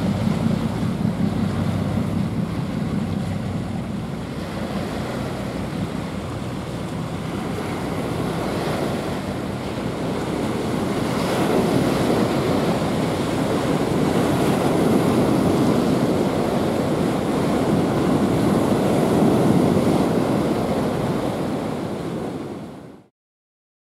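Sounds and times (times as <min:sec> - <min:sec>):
water washing against shore: 0:00.0 - 0:22.7
wind buffeting microphone: 0:00.0 - 0:23.0.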